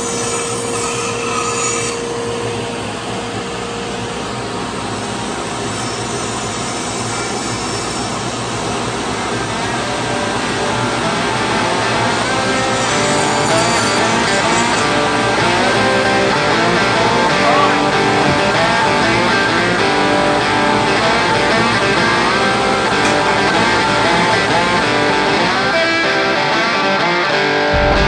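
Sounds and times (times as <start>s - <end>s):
guitar background music: 10.1s - 28.0s.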